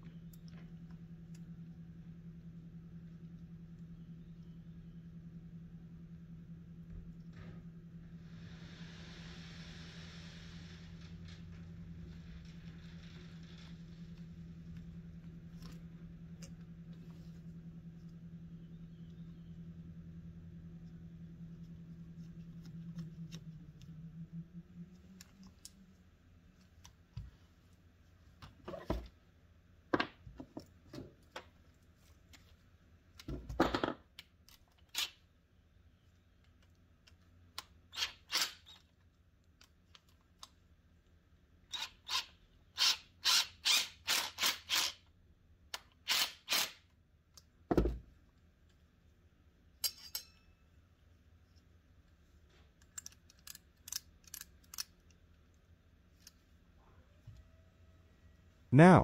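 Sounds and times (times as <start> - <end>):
metal tools clicking and clinking: 49.8 - 50.6.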